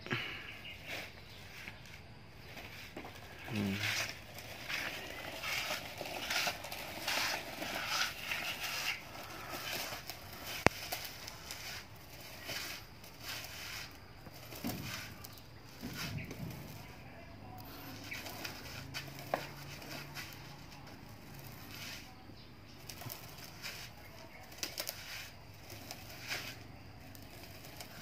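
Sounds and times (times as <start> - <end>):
plastic wheels rolling on concrete: 0.0 - 28.0.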